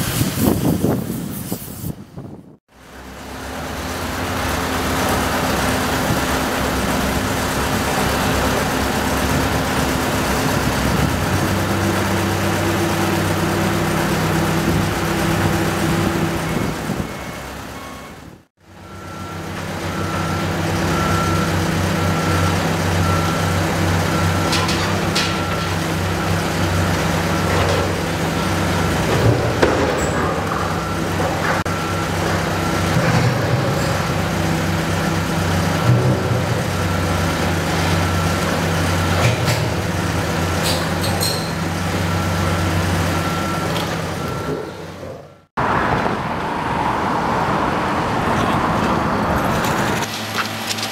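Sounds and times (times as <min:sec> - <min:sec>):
diesel machinery engines humming: 0:02.0 - 0:50.9
short metal clanks: 0:40.6 - 0:41.7.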